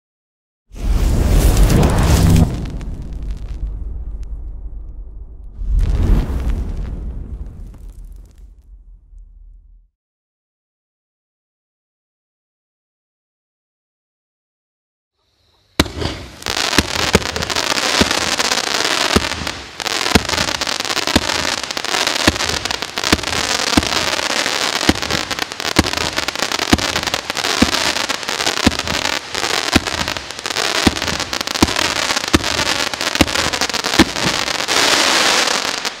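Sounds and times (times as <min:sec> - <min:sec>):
hiss of burning fireworks: 0:00.8 - 0:03.7, 0:05.6 - 0:08.6, 0:15.5 - 0:36.0
firework launch thumps: 0:00.8 - 0:09.9, 0:15.8 - 0:18.2.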